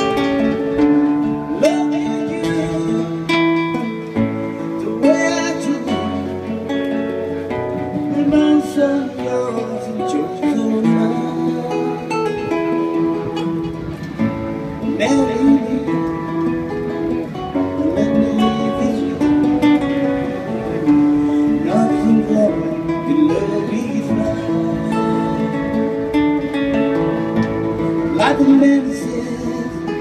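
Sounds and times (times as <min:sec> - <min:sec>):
man singing into a microphone: 0:00.0 - 0:13.4, 0:14.8 - 0:30.0
guitar accompaniment: 0:00.0 - 0:30.0.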